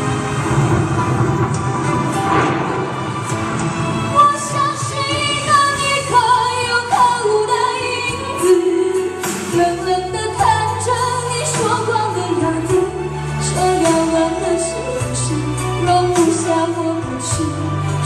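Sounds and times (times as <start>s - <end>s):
pop backing track with beat: 1.4s - 18.0s
woman singing into microphone: 4.1s - 18.0s.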